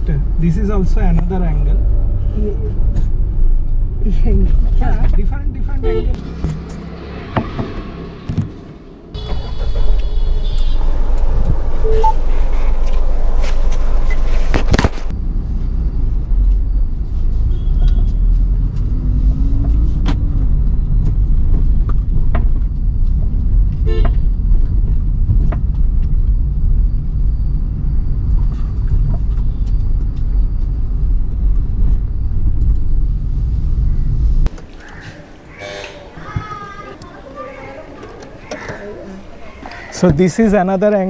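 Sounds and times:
car engine and road rumble: 0.0 - 41.0
car horn toots: 9.2 - 11.0.

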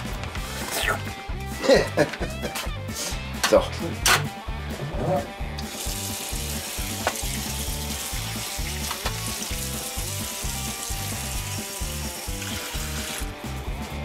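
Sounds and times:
background music with low beat: 0.0 - 14.0
faucet sprayer hissing: 5.6 - 13.6.

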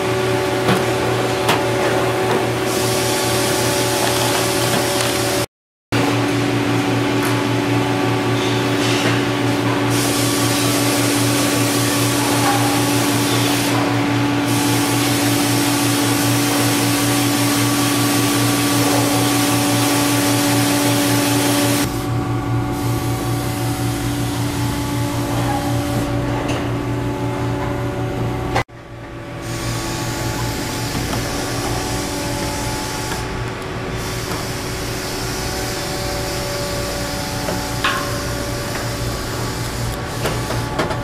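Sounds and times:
mechanical whir with low hum: 17.6 - 41.0.

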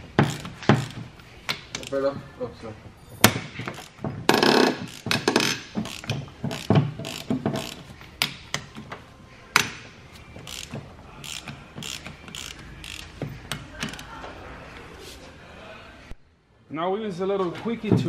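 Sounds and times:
ratchet wrench clicking: 0.2 - 1.0, 3.7 - 7.8, 10.4 - 14.1.

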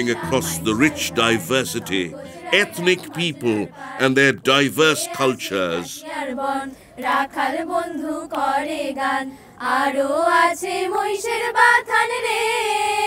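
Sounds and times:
group of women singing: 0.0 - 4.1, 5.2 - 13.0.

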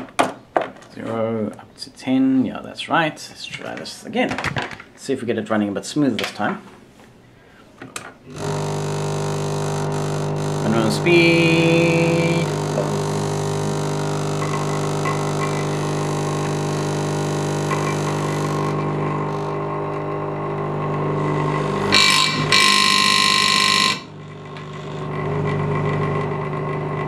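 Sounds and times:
electromagnetic vibrator buzzing: 8.3 - 27.0
loud harsh rattle: 8.3 - 27.0.

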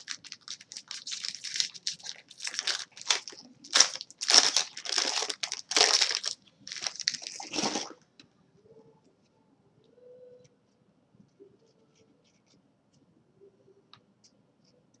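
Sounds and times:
foil wrapper crinkling: 0.0 - 8.0.

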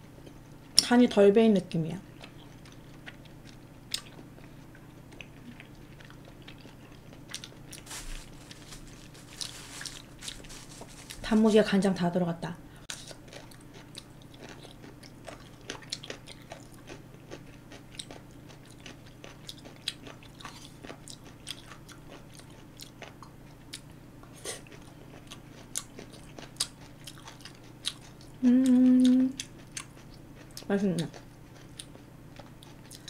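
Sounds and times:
person humming mm: 28.4 - 29.4.

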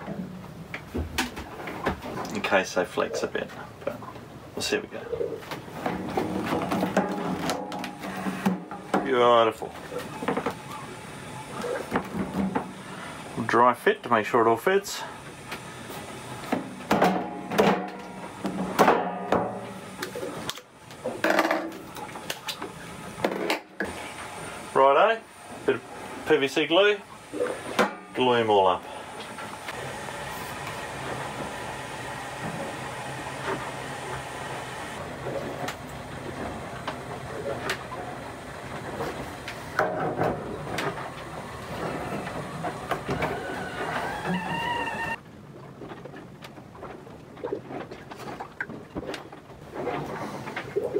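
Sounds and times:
steady background noise: 0.0 - 50.9
plastic pipes clunking and clattering: 5.4 - 9.1, 16.5 - 24.0, 39.2 - 44.5.

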